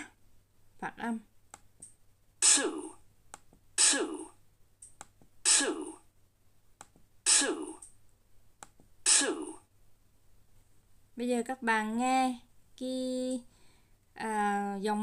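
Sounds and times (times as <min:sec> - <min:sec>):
recorded word pronunciation: 0:00.0 - 0:00.2.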